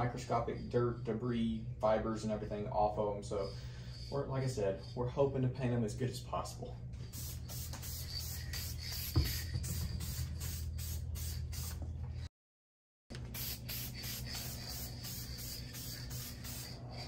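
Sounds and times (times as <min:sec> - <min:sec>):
aerosol spray can hissing: 0:07.0 - 0:11.8, 0:13.3 - 0:17.0.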